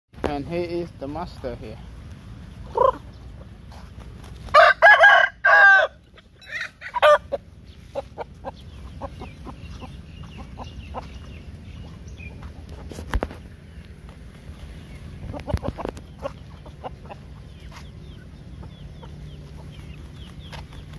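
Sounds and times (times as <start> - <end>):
hens clucking softly: 2.5 - 4.5, 6.0 - 20.9
short chicken calls: 2.6 - 3.2, 4.4 - 11.1
rooster crowing: 4.5 - 7.4.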